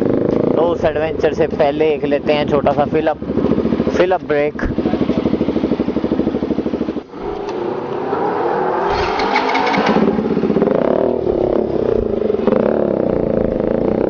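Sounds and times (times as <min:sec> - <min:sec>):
motorcycle engine accelerating: 0:00.0 - 0:14.0.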